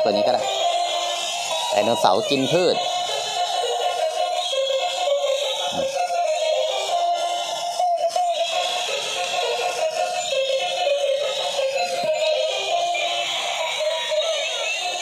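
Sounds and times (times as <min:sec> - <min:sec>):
chip-like singing voice: 0:00.0 - 0:15.0
tinny electronic toy melody: 0:00.0 - 0:15.0.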